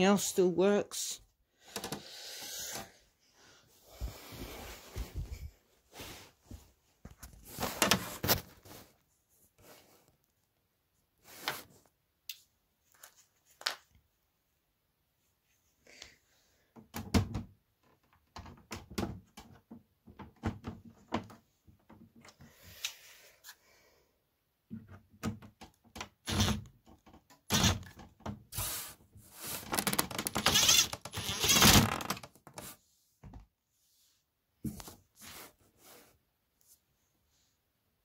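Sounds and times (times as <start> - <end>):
rubbing and scraping: 28.5 - 32.9.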